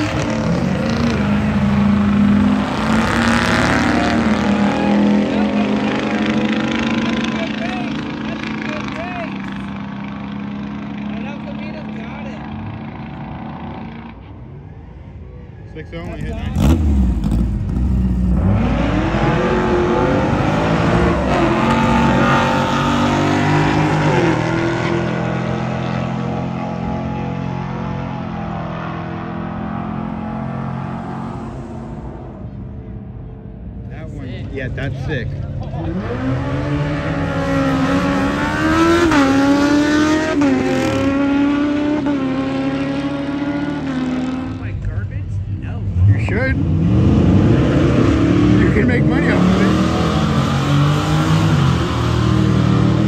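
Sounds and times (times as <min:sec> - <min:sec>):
car engines revving hard: 0:00.0 - 0:14.5, 0:15.8 - 0:53.0
motorcycle accelerating hard: 0:35.6 - 0:44.7.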